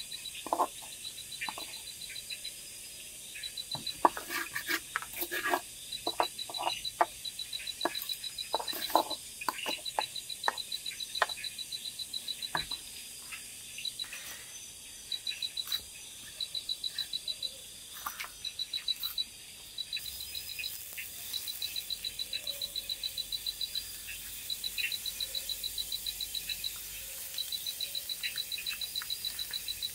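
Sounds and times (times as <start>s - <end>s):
animal chirping in high trills: 5.9s - 12.7s, 15.0s - 29.9s.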